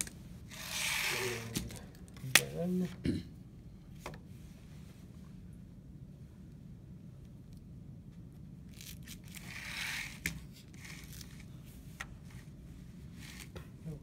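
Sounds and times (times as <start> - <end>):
plastic triangle scraping paper: 0.5 - 1.8, 8.8 - 11.4.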